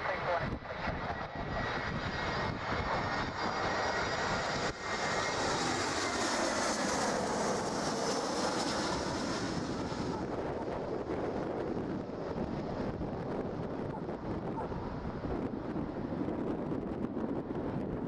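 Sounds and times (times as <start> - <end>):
jet engines whining: 0.0 - 18.0.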